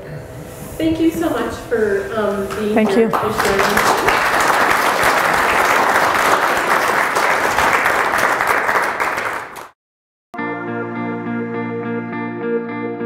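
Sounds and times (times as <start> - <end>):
audience applauding: 2.8 - 9.8.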